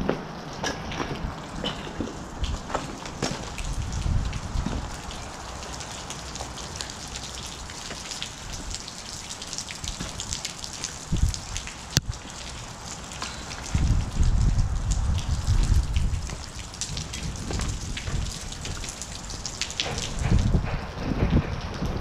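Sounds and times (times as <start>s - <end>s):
rain pattering and dripping: 0.0s - 22.0s
low thumps: 13.7s - 22.0s.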